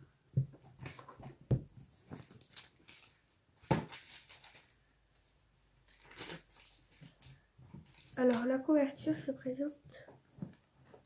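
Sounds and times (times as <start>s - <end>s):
pages rustling: 2.0s - 8.6s.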